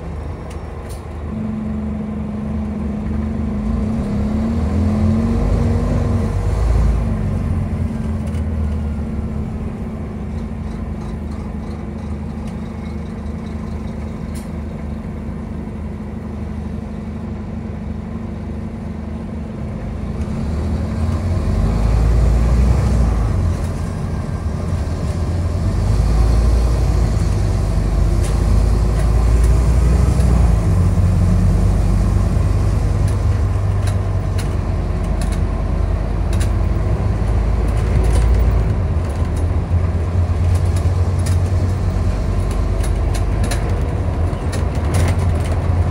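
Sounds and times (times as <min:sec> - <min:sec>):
bus engine running: 0:00.0 - 0:45.9.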